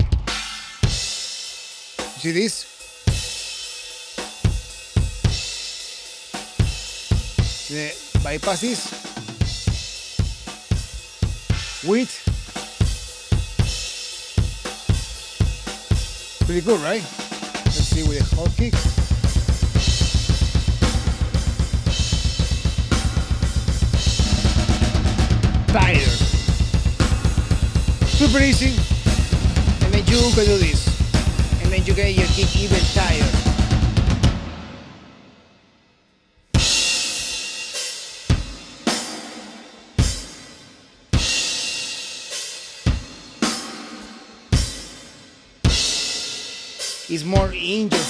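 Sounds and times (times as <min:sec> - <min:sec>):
fast kick drum: 0:17.6 - 0:34.3.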